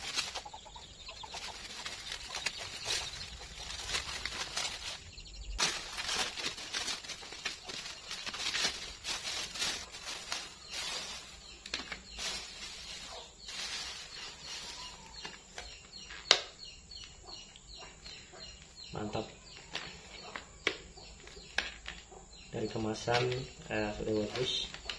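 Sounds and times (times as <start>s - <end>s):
plastic wrap crinkling: 0.0s - 16.3s.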